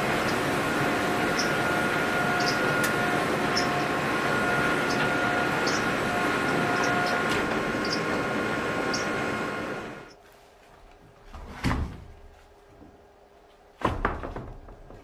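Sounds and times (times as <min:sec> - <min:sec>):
sawmill machinery whine: 0:00.0 - 0:10.2.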